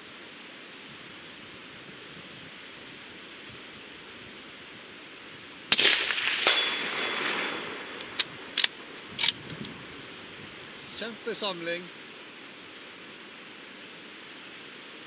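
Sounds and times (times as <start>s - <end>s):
rain hiss: 0.0s - 15.0s
suppressed rifle shot: 5.7s - 9.4s
rifle bolt clicks: 8.0s - 9.6s.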